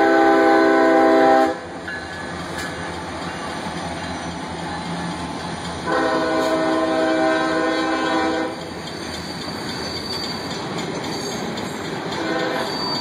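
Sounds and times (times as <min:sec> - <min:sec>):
train horn blast: 0:00.0 - 0:01.7, 0:05.8 - 0:08.6, 0:12.2 - 0:12.8
freight train wheels on rails: 0:00.0 - 0:13.0.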